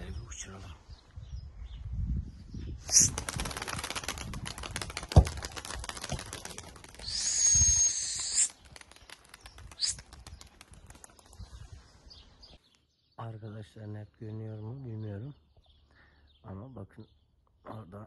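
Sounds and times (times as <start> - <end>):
pigeon wings clattering: 2.9 - 11.4.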